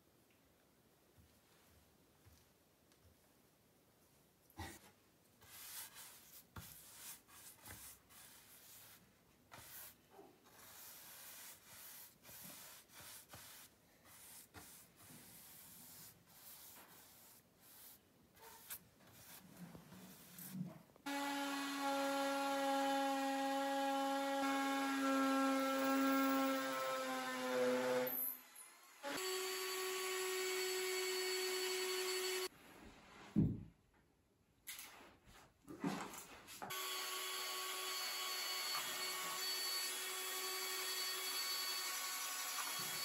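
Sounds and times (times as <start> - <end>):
scraping at a tiled wall: 4.6 - 20.9
power tool whining: 36.7 - 43.0.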